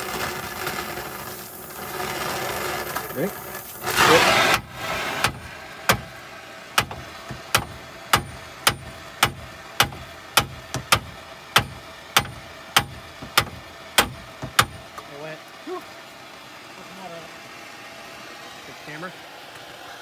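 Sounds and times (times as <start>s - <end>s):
torch hissing: 0.0s - 11.4s.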